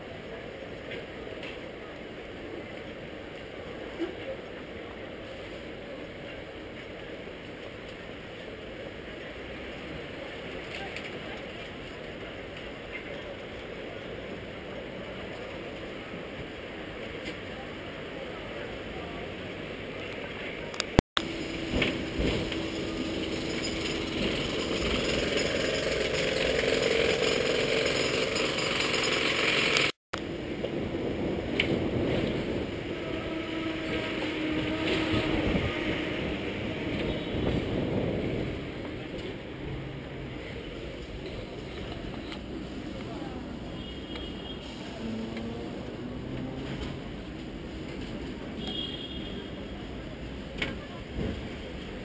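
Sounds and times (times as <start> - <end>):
tram rumbling on rails: 0.0 - 52.0
tram body rattling: 21.2 - 42.9.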